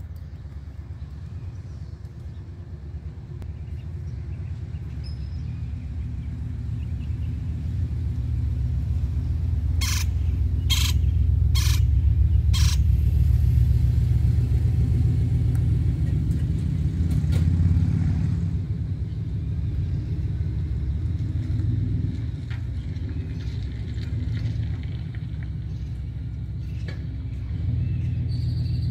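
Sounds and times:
loud low rumble: 0:00.0 - 0:21.3.

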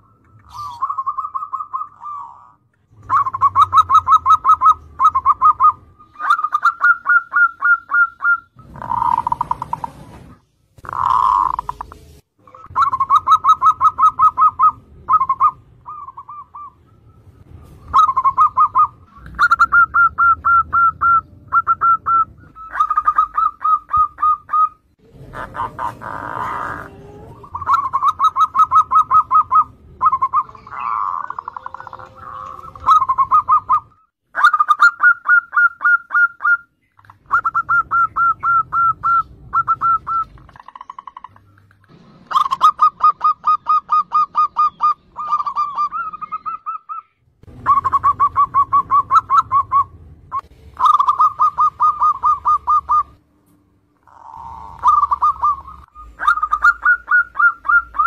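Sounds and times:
doves cooing in rapid bursts: 0:03.1 - 0:10.0, 0:10.8 - 0:11.8, 0:17.9 - 0:33.8, 0:50.8 - 0:53.1, 0:54.0 - 0:58.0.

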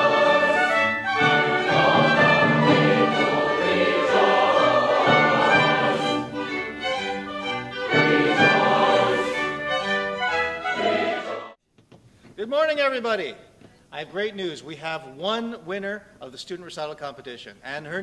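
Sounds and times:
choir singing with orchestra: 0:00.0 - 0:11.6.

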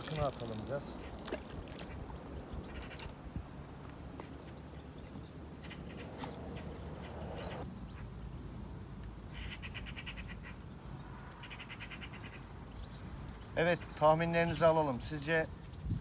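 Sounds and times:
steady low rumble: 0:04.6 - 0:07.9
bird rattling call: 0:05.6 - 0:07.6.

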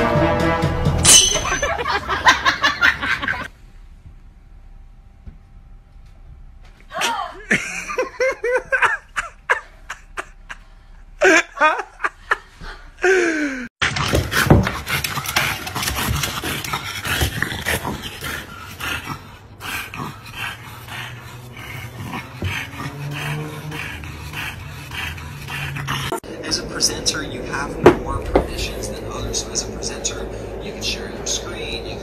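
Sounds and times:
woman crying out and laughing: 0:06.9 - 0:10.3, 0:11.2 - 0:12.2
dog growling: 0:13.8 - 0:31.7
dog panting and snuffling: 0:14.0 - 0:26.2.

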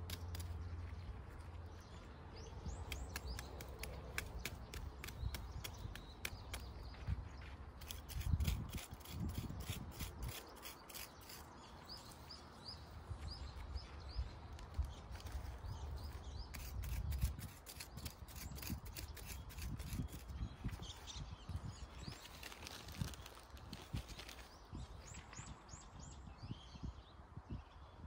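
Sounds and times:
grass snipping and rustling: 0:22.0 - 0:24.6.

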